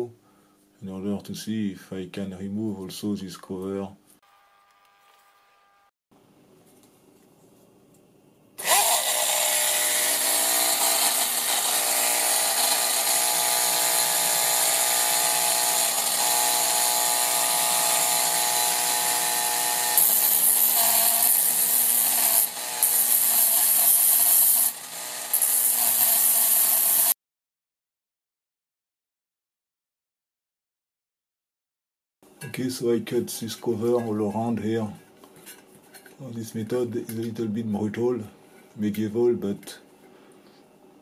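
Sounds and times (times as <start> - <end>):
rotary tool cutting metal: 8.6 - 27.2.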